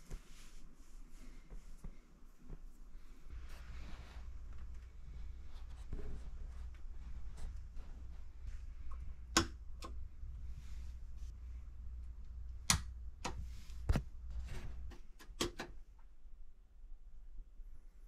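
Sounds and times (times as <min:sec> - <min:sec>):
low steady hum: 0:00.0 - 0:18.0
light switch clicks: 0:09.3 - 0:10.0.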